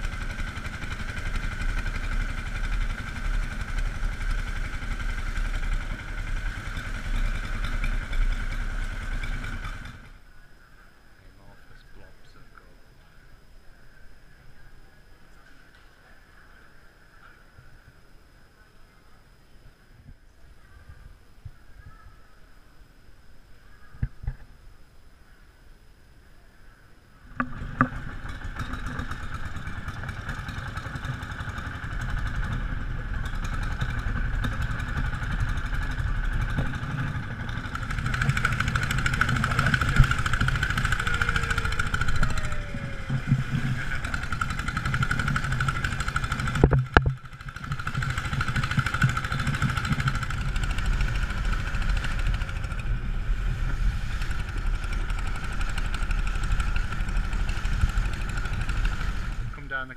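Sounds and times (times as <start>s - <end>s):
boat engine running: 0.0s - 10.2s, 27.2s - 59.9s
water rushing past hull: 49.8s - 59.5s.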